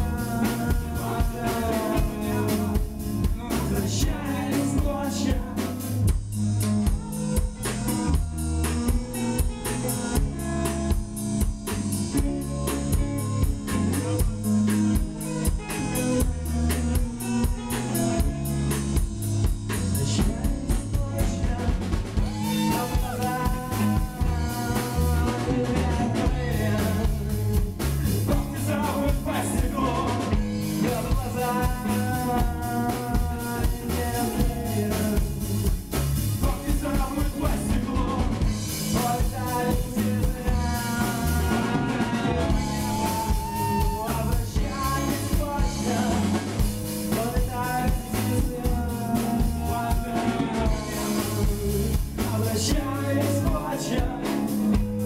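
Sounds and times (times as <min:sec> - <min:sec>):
man singing: 0:00.0 - 0:06.2, 0:06.8 - 0:11.0, 0:19.7 - 0:55.0
live rock band playing: 0:00.0 - 0:55.0.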